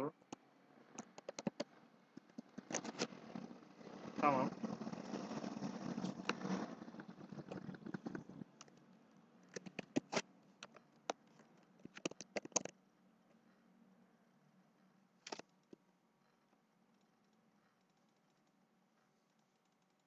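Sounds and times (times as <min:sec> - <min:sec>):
faint background hum: 0:00.0 - 0:20.0
keyboard typing: 0:01.0 - 0:03.1, 0:09.5 - 0:11.2, 0:11.8 - 0:12.7.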